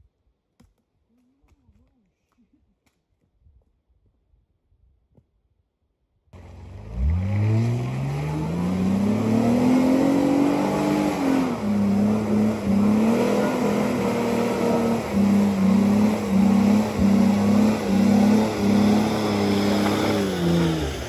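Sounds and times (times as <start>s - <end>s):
truck engine revving hard: 6.4s - 21.0s.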